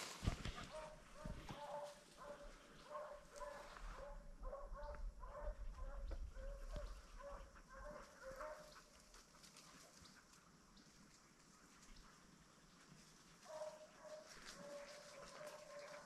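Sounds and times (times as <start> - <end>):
distant hounds baying: 0.4 - 9.2, 13.4 - 16.0.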